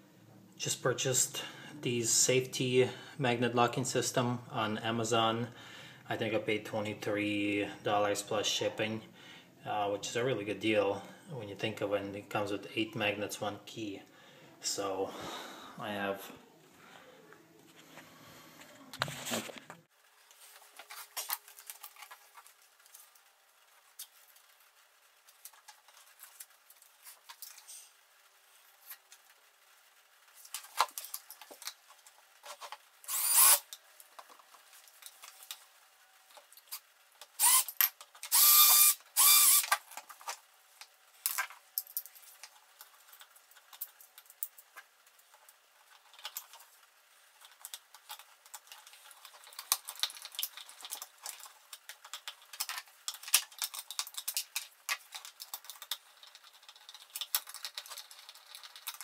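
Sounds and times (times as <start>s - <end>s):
small parts clicking and rustling: 19.0s - 59.0s
small power drill: 33.0s - 33.7s, 37.4s - 39.8s.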